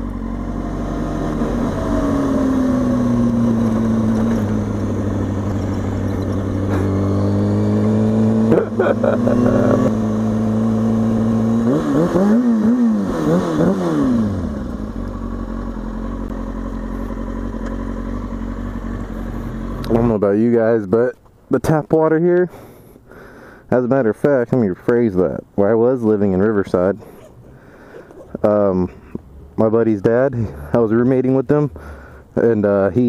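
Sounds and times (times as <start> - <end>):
motorcycle engine revving: 0.0 - 20.3.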